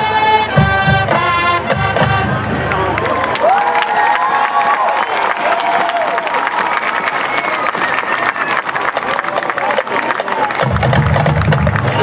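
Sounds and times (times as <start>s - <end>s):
low brass notes: 0.0s - 3.0s
marching band playing: 0.0s - 3.2s, 8.2s - 12.0s
crowd applause and cheering: 2.2s - 12.0s.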